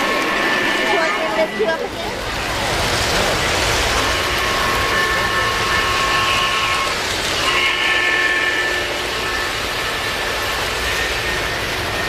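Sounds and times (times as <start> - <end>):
train rumbling on track: 0.0 - 12.0
train chime whistle blasts: 4.1 - 12.0.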